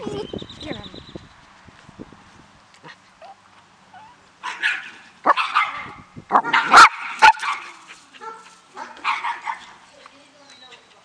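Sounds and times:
small dogs barking: 4.4s - 9.8s.

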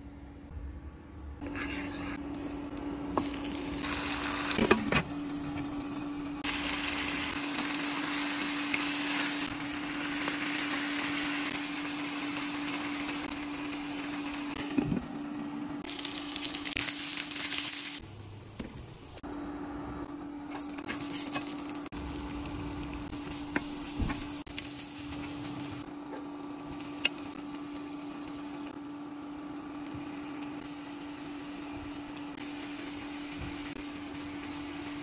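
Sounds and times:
chicken sizzling in oil: 3.2s - 4.8s, 6.4s - 14.8s, 15.8s - 18.0s.

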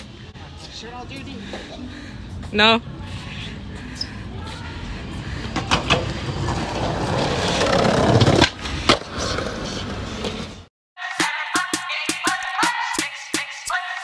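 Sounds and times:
skateboard wheels on concrete: 4.2s - 10.7s
hip hop music with beat: 11.0s - 14.0s.

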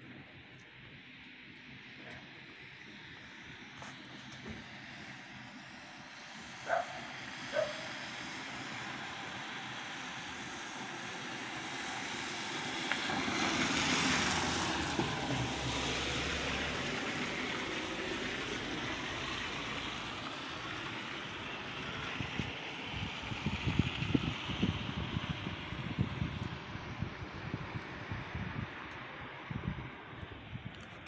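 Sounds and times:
street noise: 0.0s - 31.0s
vehicle passing: 11.7s - 21.2s.

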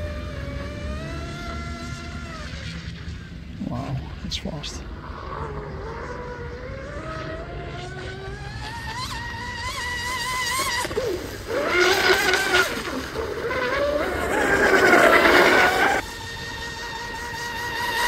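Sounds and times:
electric motor whining: 4.9s - 18.0s.

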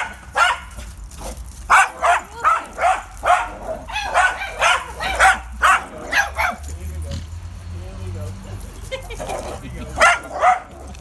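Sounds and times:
small dog barking: 0.0s - 0.8s, 1.7s - 6.6s, 10.0s - 10.9s.

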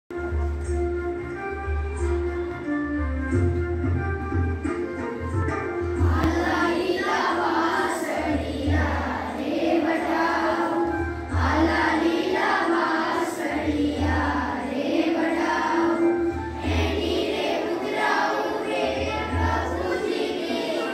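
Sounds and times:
children singing in unison: 6.0s - 20.9s.

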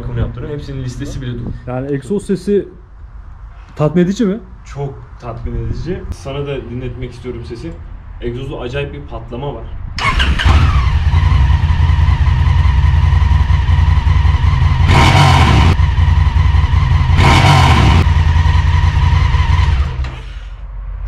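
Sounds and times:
motorcycle engine revving: 10.0s - 20.4s.

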